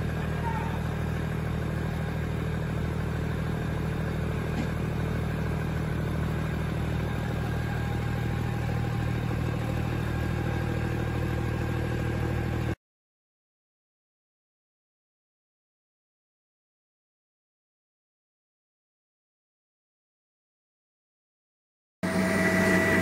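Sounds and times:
heavy machinery engine running: 0:00.0 - 0:12.8, 0:22.0 - 0:23.0
faint engine knock: 0:04.3 - 0:05.1.

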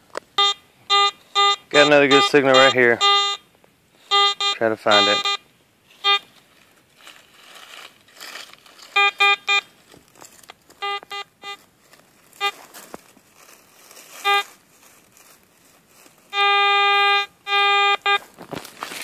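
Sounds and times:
metal detector beeps and tones: 0:00.4 - 0:06.3, 0:08.9 - 0:09.7, 0:10.8 - 0:11.6, 0:12.4 - 0:12.6, 0:14.2 - 0:14.5, 0:16.3 - 0:18.3.

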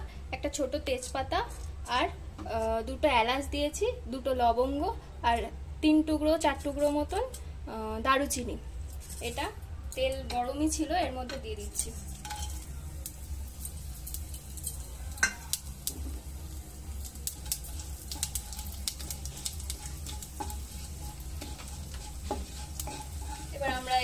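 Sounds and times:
steady low hum: 0:00.0 - 0:24.0
spices sizzling in hot oil: 0:08.9 - 0:24.0
spatula tapping wok: 0:11.2 - 0:24.0.

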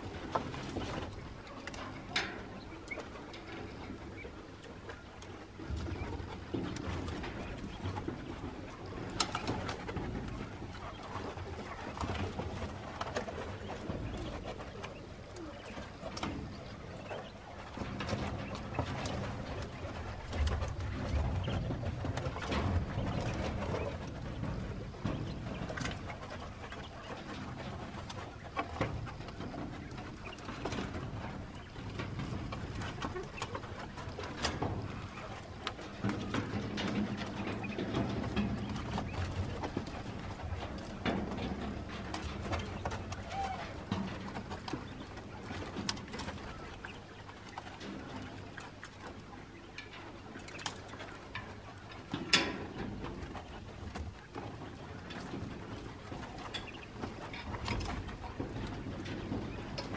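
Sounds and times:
doves cooing: 0:00.0 - 0:59.9.

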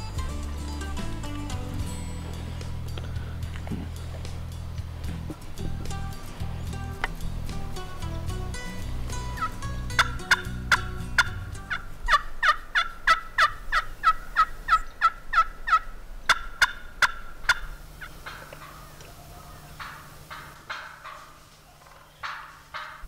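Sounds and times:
low background music: 0:00.0 - 0:12.5
turkey yelps: 0:09.3 - 0:23.0.

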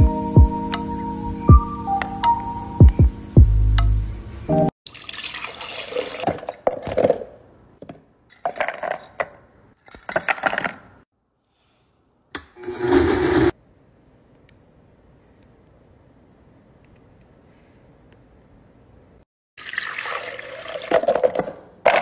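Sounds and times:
liquid pouring: 0:04.9 - 0:06.7, 0:19.6 - 0:21.3
click: 0:14.3 - 0:14.6, 0:15.4 - 0:17.3.

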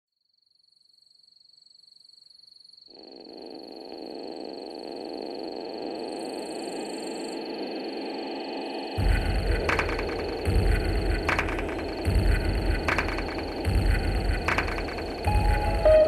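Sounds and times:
high insect trill: 0:00.3 - 0:16.0
dense lower frog chorus: 0:02.7 - 0:16.0.

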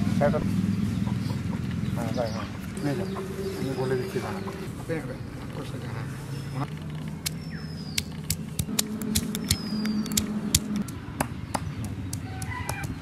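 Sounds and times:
stone pestle pounding garlic: 0:11.5 - 0:13.0.

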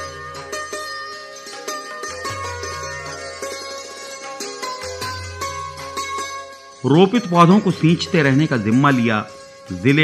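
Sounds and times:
plucked string notes: 0:00.0 - 0:10.0
low sustained bass: 0:02.0 - 0:04.1.

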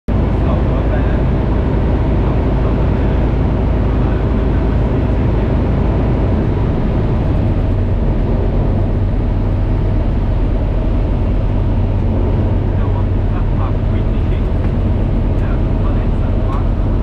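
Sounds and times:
light aircraft engine drone: 0:00.1 - 0:17.0
rushing air: 0:01.4 - 0:17.0.

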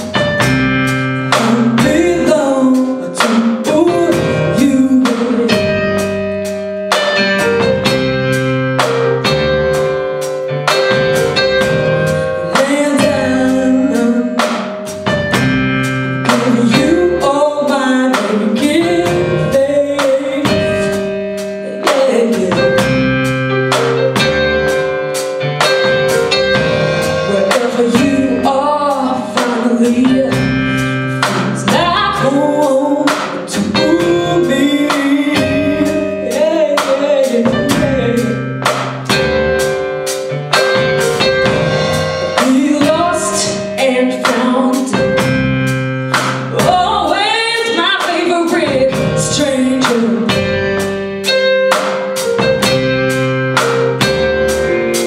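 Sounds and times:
live band playing: 0:00.0 - 0:55.0
woman singing: 0:01.3 - 0:06.4, 0:11.4 - 0:14.9, 0:16.2 - 0:23.3, 0:27.2 - 0:38.6, 0:42.4 - 0:45.4, 0:46.4 - 0:50.9.

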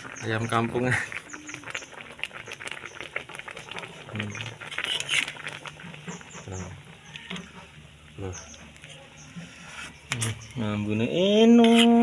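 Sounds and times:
crackling and popping: 0:00.0 - 0:09.4
chicken cooking in a wok: 0:00.0 - 0:12.0.

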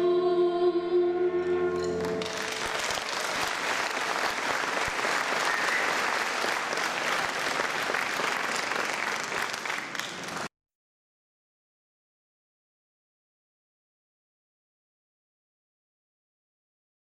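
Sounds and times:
audience applauding: 0:02.0 - 0:10.5.

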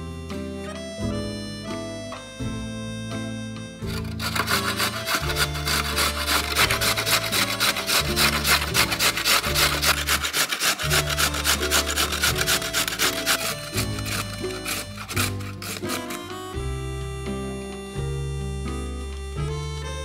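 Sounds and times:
low background music: 0:00.0 - 0:20.0
carrots grated on metal grater: 0:03.9 - 0:16.4.

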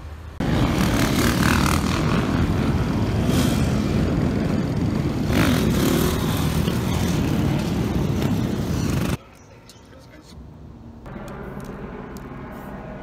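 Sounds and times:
dirt bikes and quads revving: 0:00.2 - 0:09.2.

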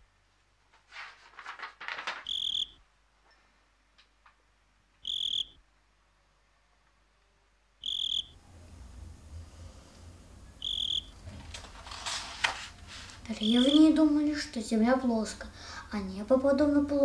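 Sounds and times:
soft rustle: 0:00.6 - 0:02.3, 0:11.2 - 0:13.8
cricket chirping: 0:02.2 - 0:02.8, 0:05.0 - 0:05.6, 0:07.8 - 0:08.4, 0:10.5 - 0:11.2
low background rumble: 0:07.4 - 0:11.8.

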